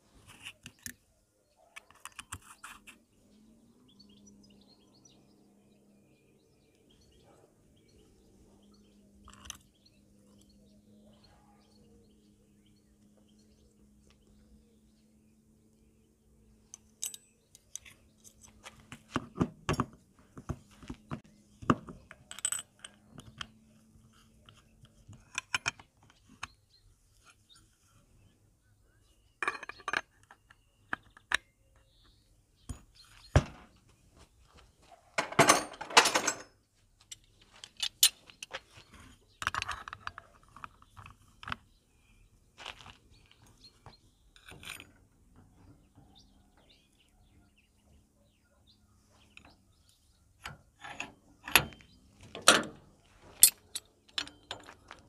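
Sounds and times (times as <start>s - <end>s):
metal parts clinking and clattering: 16.7s - 18.8s, 22.0s - 23.5s, 29.4s - 30.6s, 35.2s - 38.8s, 44.4s - 45.1s, 50.4s - 55.0s.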